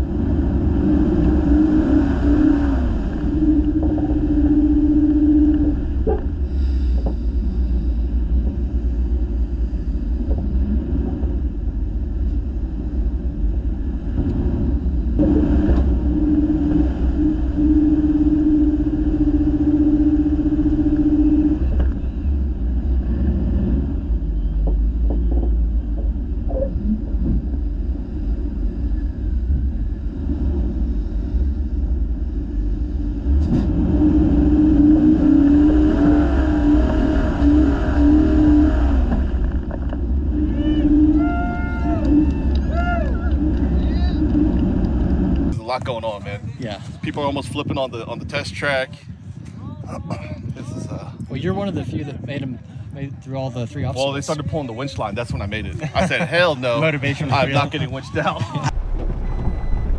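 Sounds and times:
engine revving drone: 0.0 - 45.8, 58.4 - 59.9
vehicle engine rumbling: 0.0 - 59.9.

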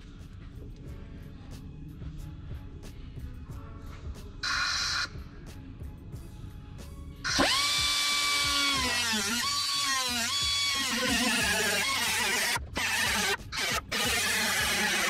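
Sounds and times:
angle grinder cutting steel: 7.3 - 15.0.

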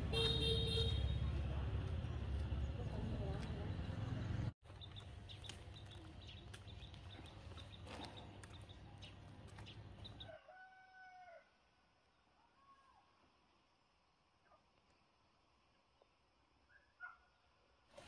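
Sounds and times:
rooster crowing: 10.3 - 11.5.

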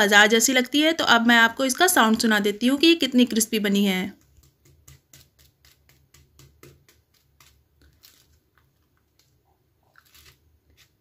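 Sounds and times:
crisp fried crust crackling: 4.2 - 11.0.

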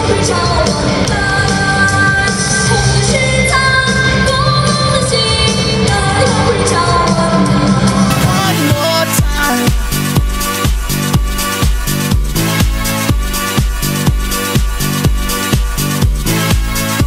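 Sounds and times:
loud pop-rock song with singing: 0.0 - 11.6.

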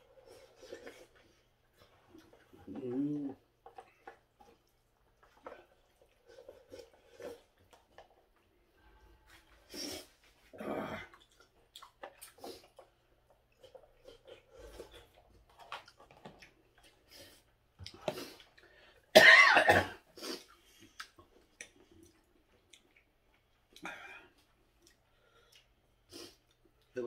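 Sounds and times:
chewing noises: 0.0 - 8.7, 9.3 - 19.0, 20.2 - 27.0
man coughing: 19.2 - 20.0.

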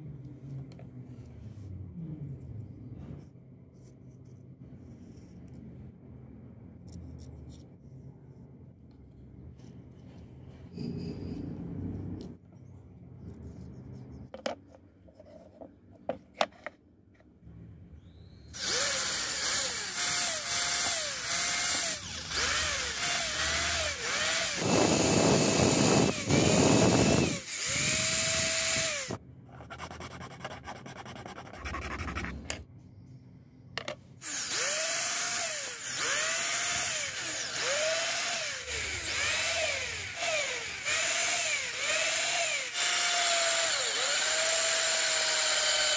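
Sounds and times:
cordless drill boring through plastic: 18.6 - 29.2, 34.2 - 45.9.

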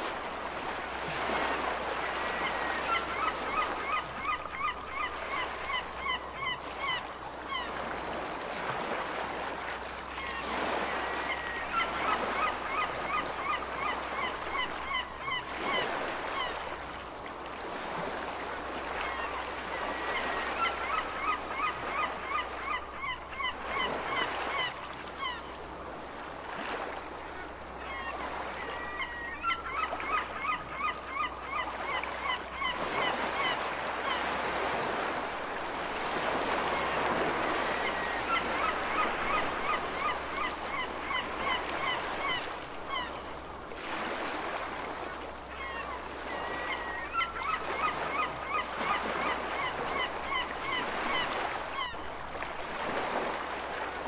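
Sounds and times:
ocean waves washing: 0.0 - 54.0
gulls calling: 1.2 - 7.8, 10.2 - 16.7, 19.0 - 25.6, 27.4 - 43.3, 45.4 - 52.2.

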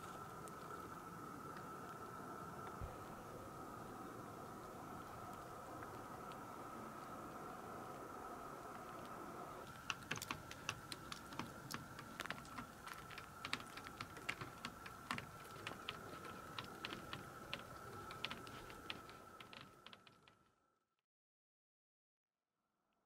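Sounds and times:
raindrops ticking on hard surface: 4.4 - 20.3.

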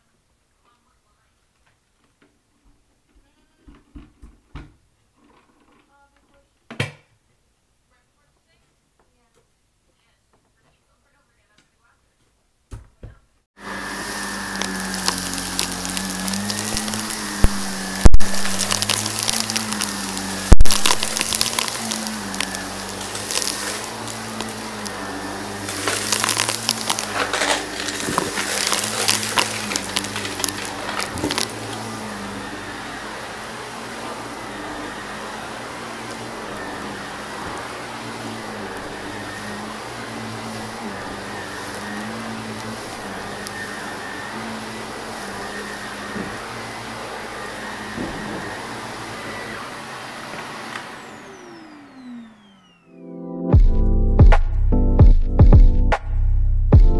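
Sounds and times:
debris crackling in vacuum: 13.6 - 52.8
vacuum cleaner motor hum: 13.6 - 53.0.

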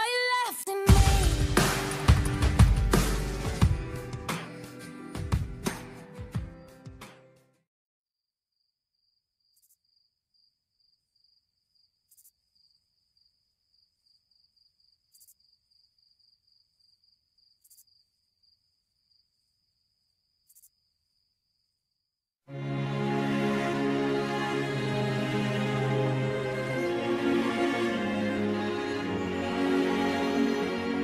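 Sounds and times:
music: 0.0 - 7.6, 22.5 - 31.0
cricket chirping: 8.5 - 22.2.

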